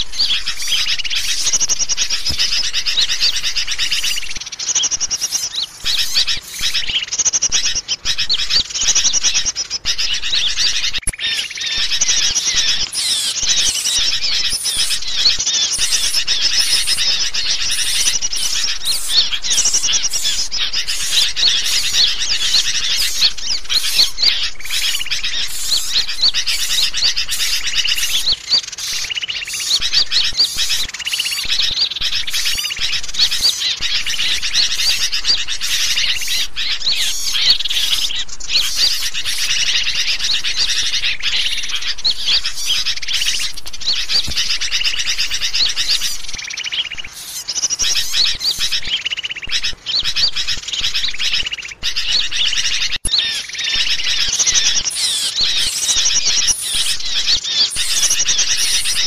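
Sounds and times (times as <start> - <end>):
songbirds chirping and whistling: 0.0 - 59.0.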